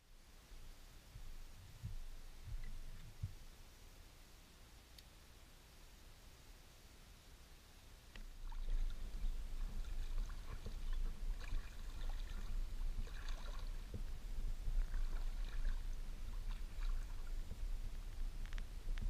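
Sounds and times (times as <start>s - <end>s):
water dripping and trickling: 8.2s - 18.6s
paddle dipping in water: 8.2s - 19.0s
steady low rumble: 8.2s - 19.0s.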